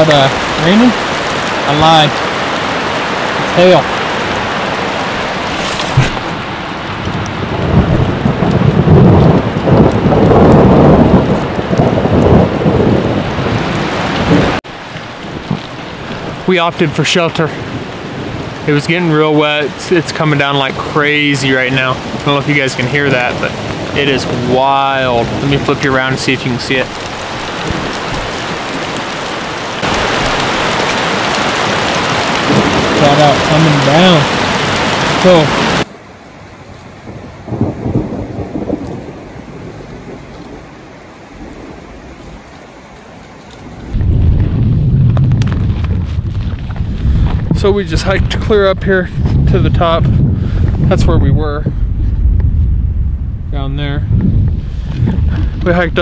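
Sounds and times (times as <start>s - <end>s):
hail falling on forest floor: 0.0s - 51.0s, 53.6s - 56.0s
heavy low rumble: 3.4s - 34.2s, 43.7s - 56.0s.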